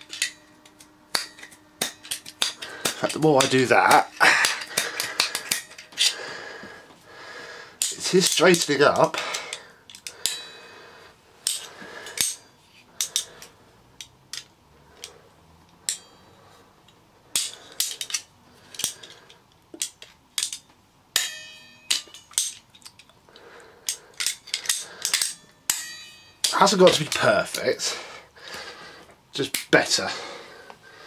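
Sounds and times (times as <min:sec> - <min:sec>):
metal clicks and knocks of pliers: 0:00.0 - 0:06.2, 0:07.8 - 0:10.4, 0:11.4 - 0:12.4, 0:13.0 - 0:16.1, 0:16.8 - 0:23.2, 0:23.8 - 0:27.8.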